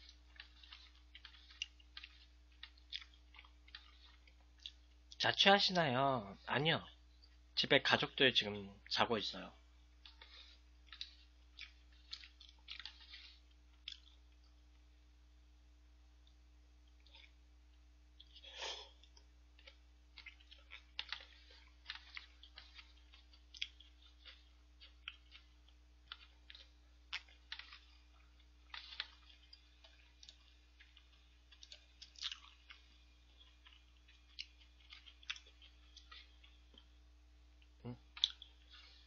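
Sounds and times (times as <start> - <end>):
chewing noodles: 0.0 - 5.3, 9.9 - 14.9, 16.8 - 17.4, 18.2 - 39.0.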